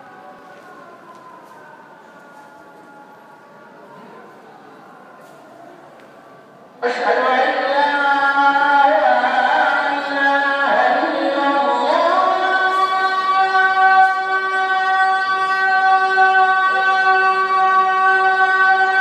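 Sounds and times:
man singing call to prayer: 0:06.8 - 0:19.0.

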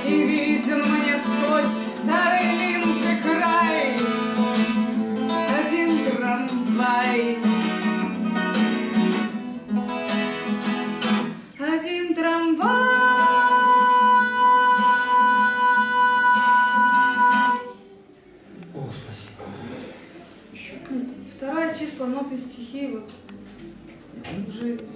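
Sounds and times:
woman singing: 0:00.0 - 0:04.3, 0:05.3 - 0:07.7, 0:11.6 - 0:17.8
strummed acoustic guitar: 0:00.0 - 0:17.9.

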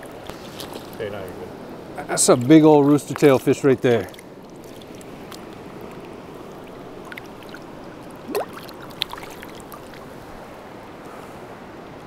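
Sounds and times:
river water over gravel: 0:00.0 - 0:11.0
fish splashing: 0:04.0 - 0:10.2.

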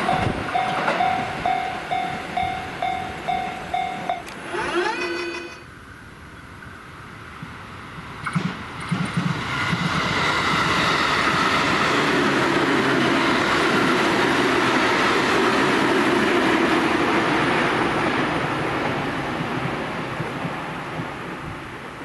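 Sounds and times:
train wheels clacking: 0:00.0 - 0:05.6, 0:08.2 - 0:16.4
train rushing past: 0:00.0 - 0:05.8, 0:06.9 - 0:22.0.

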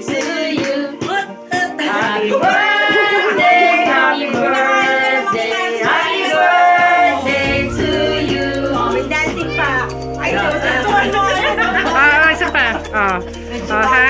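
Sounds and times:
voices singing: 0:00.0 - 0:14.0
instrumental accompaniment: 0:05.9 - 0:14.0.

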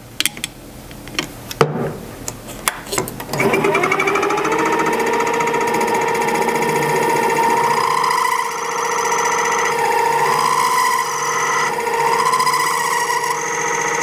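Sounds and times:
lathe motor whine: 0:03.3 - 0:14.0.

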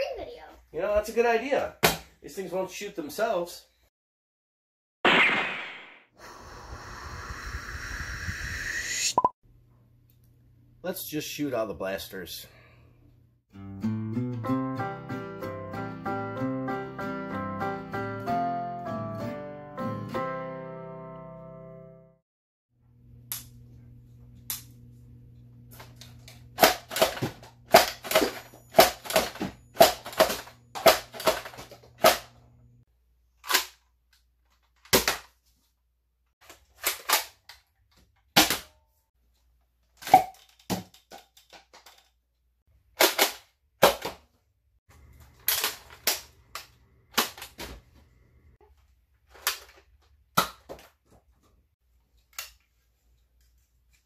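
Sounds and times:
foam darts firing: 0:05.0 - 0:06.0.

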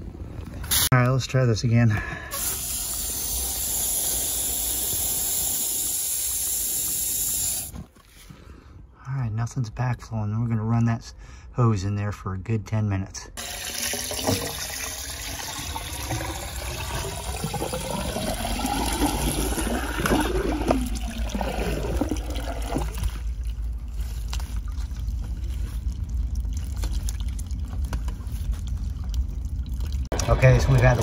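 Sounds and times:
water rushing into drain pipe: 0:13.4 - 0:23.8, 0:29.0 - 0:31.0.

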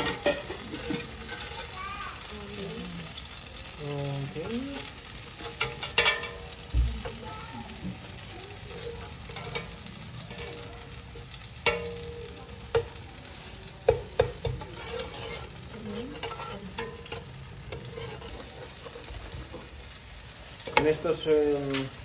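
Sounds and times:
food sizzling in a pan: 0:00.0 - 0:22.0
utensil knocking against pan: 0:11.6 - 0:13.0, 0:13.8 - 0:14.9.

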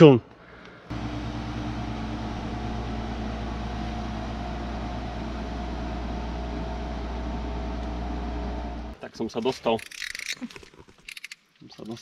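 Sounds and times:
boat motor droning: 0:00.9 - 0:09.0.

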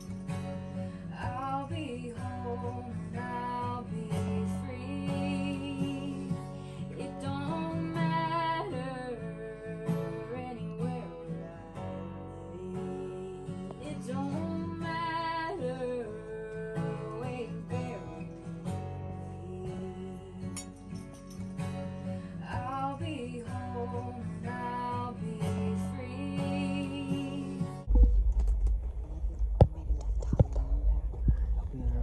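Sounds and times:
acoustic guitar song: 0:00.0 - 0:32.0
person singing: 0:19.2 - 0:20.6.

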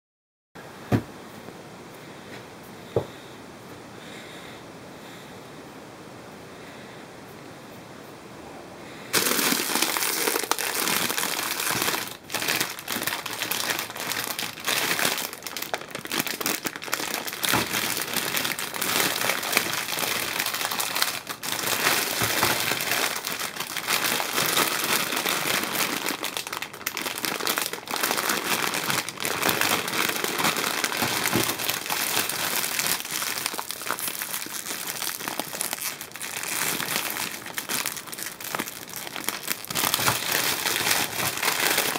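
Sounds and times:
plastic candy bags crinkling: 0:09.1 - 0:41.9.

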